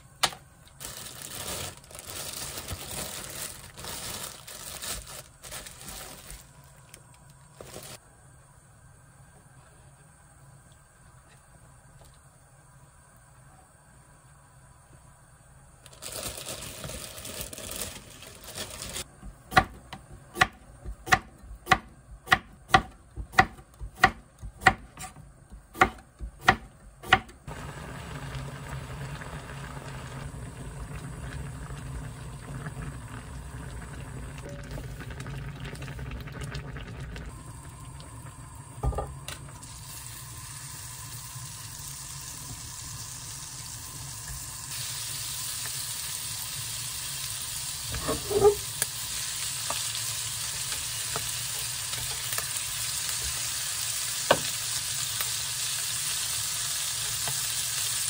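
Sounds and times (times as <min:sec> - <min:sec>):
knife chopping on wooden board: 0:19.5 - 0:27.3
butter sizzling in frying pan: 0:37.4 - 0:58.0.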